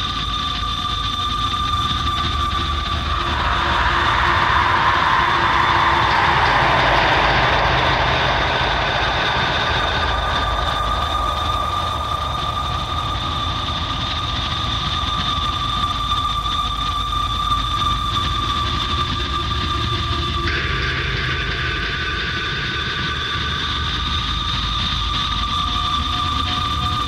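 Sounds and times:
rumbling noise bed: 2.2 - 16.4
hissing swell sinking in pitch: 2.8 - 15.9
high held tones: 2.8 - 16.0.

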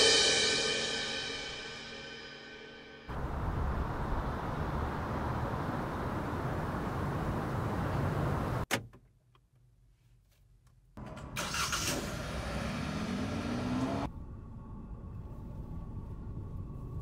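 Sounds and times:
car engine starting and revving: 3.1 - 8.7, 11.0 - 17.0.

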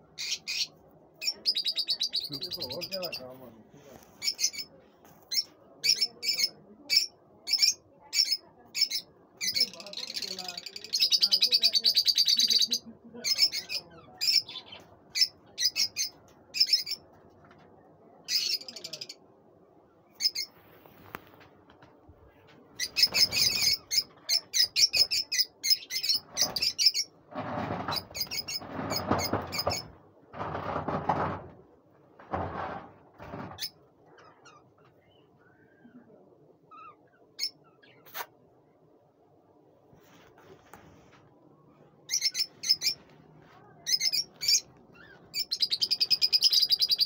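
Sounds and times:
lovebirds chirping: 0.0 - 17.2, 20.0 - 21.0, 22.4 - 27.2, 33.6 - 38.3, 41.5 - 43.2, 43.8 - 47.0
low rustling noise: 20.4 - 23.2, 39.6 - 45.4.

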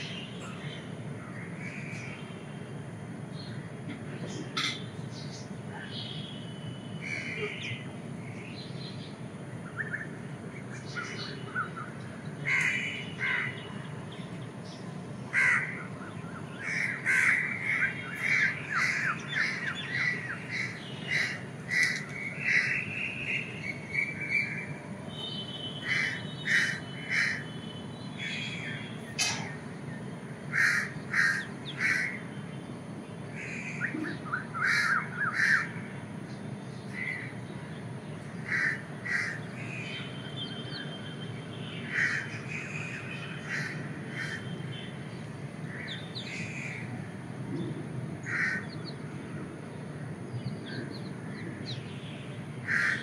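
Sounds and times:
crows cawing: 12.4 - 13.6, 15.3 - 15.9, 16.6 - 22.8, 25.8 - 27.5, 30.5 - 32.2, 34.6 - 35.8, 38.4 - 39.8, 41.8 - 44.5, 48.2 - 48.9, 52.6 - 53.0.

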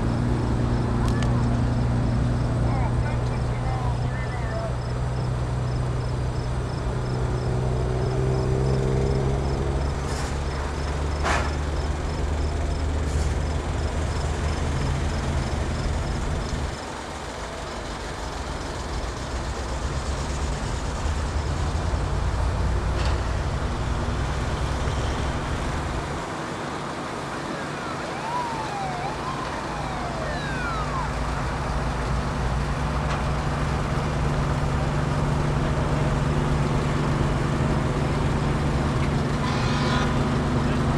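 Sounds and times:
fire truck engines rumbling: 0.0 - 40.9
siren wailing: 27.3 - 32.0.

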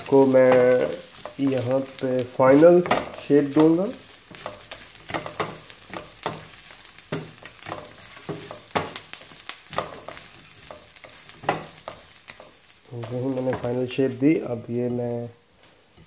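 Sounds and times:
vegetables sizzling in a frying pan: 0.0 - 16.0
utensil scraping a pan: 0.1 - 14.0.

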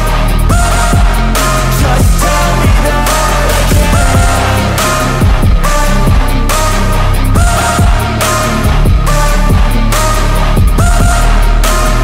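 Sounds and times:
electronic music with heavy bass: 0.0 - 12.0.

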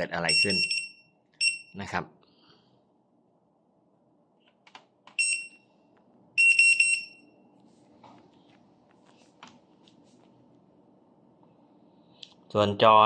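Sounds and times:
alarm keypad beeping: 0.2 - 1.8, 5.1 - 5.7, 6.4 - 7.5.

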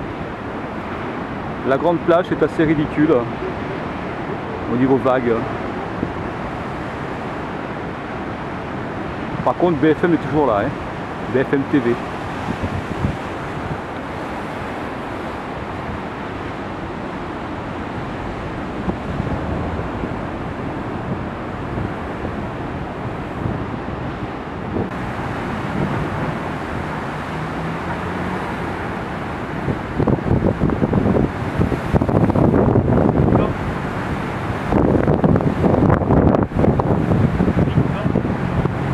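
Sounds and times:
storm surf breaking: 0.0 - 38.9
wind buffeting microphone: 0.0 - 38.9.

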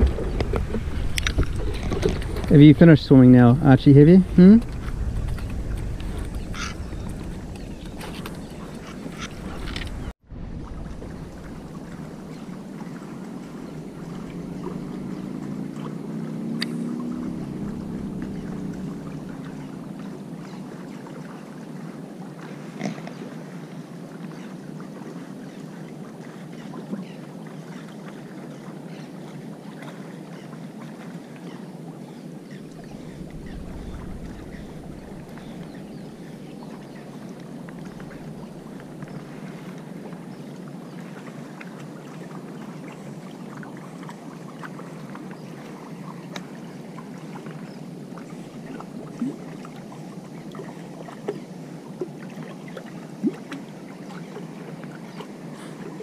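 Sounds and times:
wind rumble on microphone: 0.0 - 20.9, 32.1 - 41.1
water lapping against rocks: 0.0 - 56.0.

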